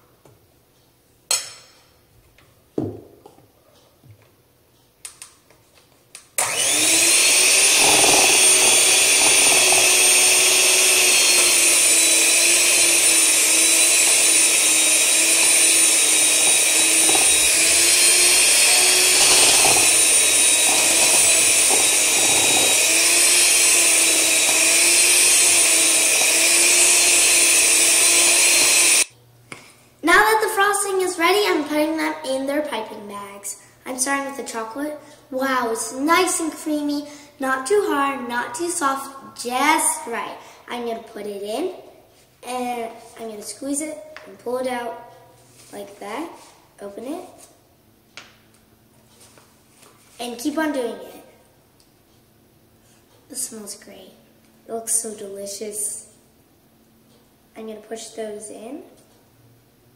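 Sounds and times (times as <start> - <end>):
electric hand mixer running: 6.4 - 29.1.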